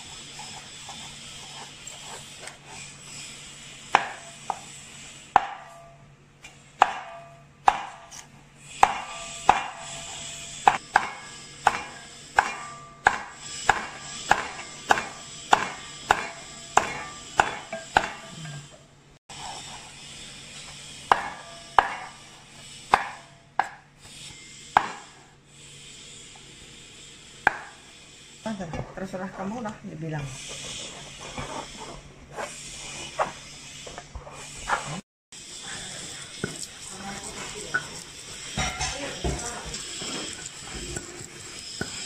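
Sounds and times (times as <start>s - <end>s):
cleaver chopping on wooden block: 3.9s - 4.3s, 5.4s - 5.8s, 6.8s - 8.2s, 8.8s - 9.9s, 10.7s - 18.3s, 21.1s - 22.1s, 22.9s - 23.8s, 24.8s - 25.1s, 27.5s - 27.8s.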